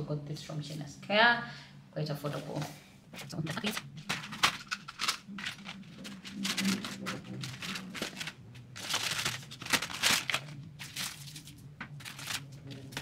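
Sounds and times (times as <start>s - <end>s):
tissue paper and plastic rustling: 2.2s - 13.0s.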